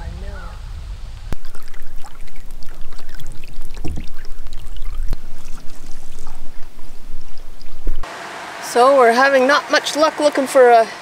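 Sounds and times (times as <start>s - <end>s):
water splashing and trickling: 1.3s - 8.1s.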